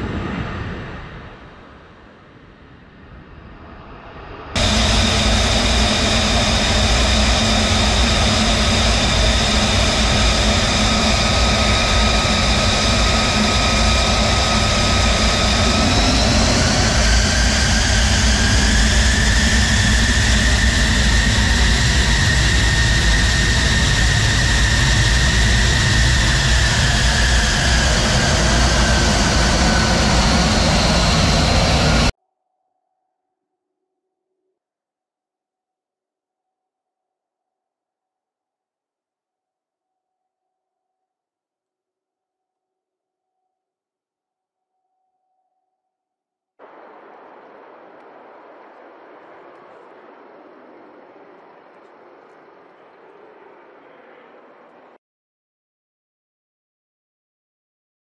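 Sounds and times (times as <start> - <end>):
jet engine whining rush: 0.0 - 32.1, 46.6 - 55.0.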